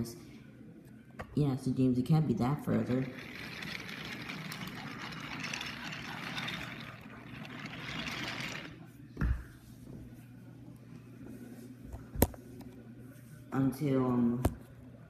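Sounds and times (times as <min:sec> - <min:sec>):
toy train rolling on wooden track: 0:02.7 - 0:08.8.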